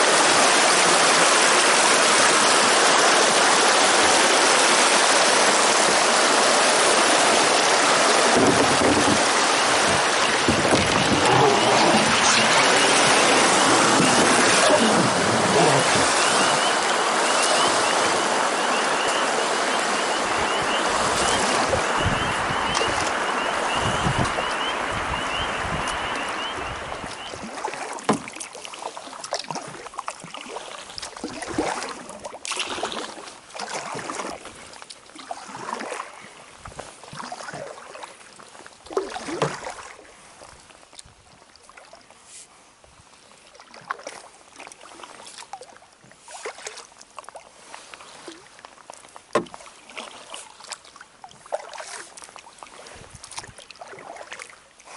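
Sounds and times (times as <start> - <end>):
water rushing over dam: 0.0 - 36.2
paddle splashes: 0.0 - 54.9
paddle knocking on canoe hull: 8.2 - 16.8, 27.8 - 28.5, 49.3 - 49.7.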